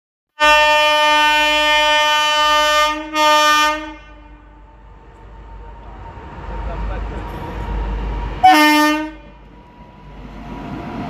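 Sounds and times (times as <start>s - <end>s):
train horn blasts: 0.4s - 4.8s, 8.4s - 9.5s
low rumble of approaching train: 0.5s - 11.0s.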